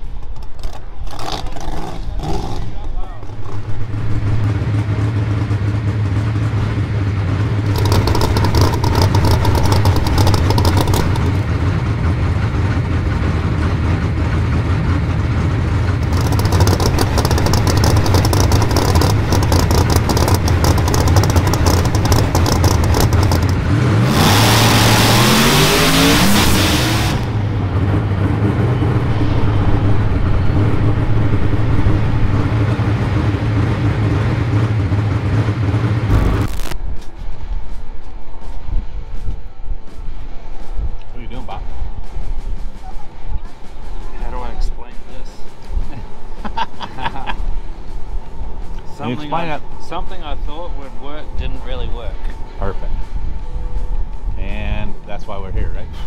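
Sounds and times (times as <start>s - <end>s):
race car engine running rough: 0.0s - 36.8s.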